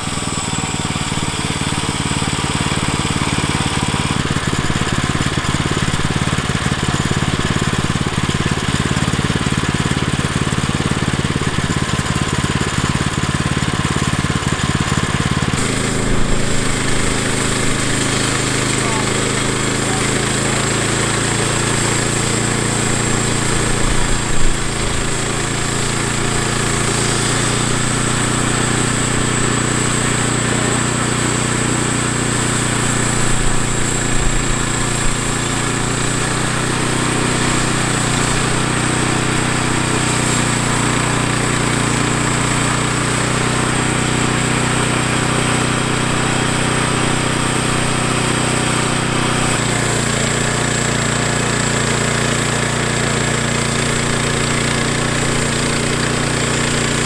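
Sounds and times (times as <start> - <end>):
sawmill engine humming: 0.0 - 57.0
band blade cutting log: 15.5 - 57.0.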